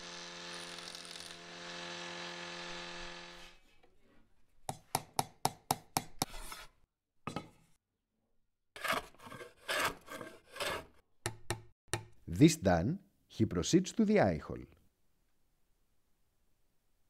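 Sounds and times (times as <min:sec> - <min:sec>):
table saw cutting wood: 0:00.0 - 0:03.6
hand plane on wood: 0:08.8 - 0:10.9
hand tool scraping wood: 0:08.8 - 0:11.0.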